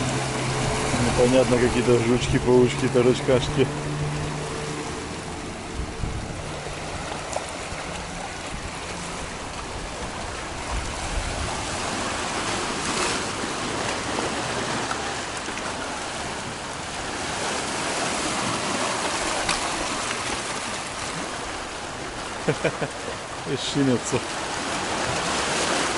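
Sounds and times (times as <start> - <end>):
sea waves washing over rocks: 0.0 - 25.9.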